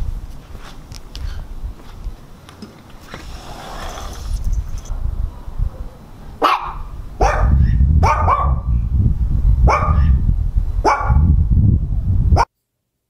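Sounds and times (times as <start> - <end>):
dog barking: 5.7 - 8.7, 9.7 - 10.2, 10.8 - 11.3.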